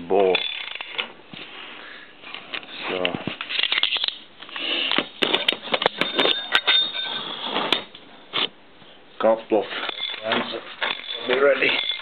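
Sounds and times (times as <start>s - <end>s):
spanner clinking on steel nut: 9.9s - 12.0s.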